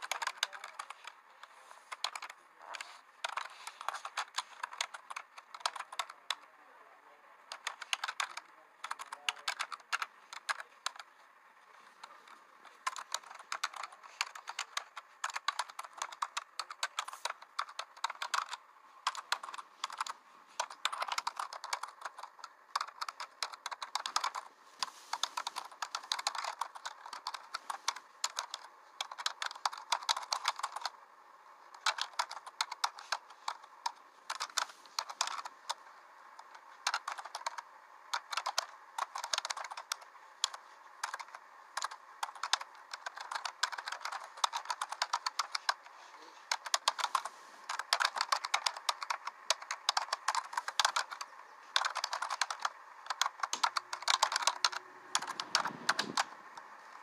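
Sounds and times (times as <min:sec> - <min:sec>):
keyboard typing: 0:00.0 - 0:06.6, 0:07.4 - 0:31.0, 0:31.6 - 0:57.0.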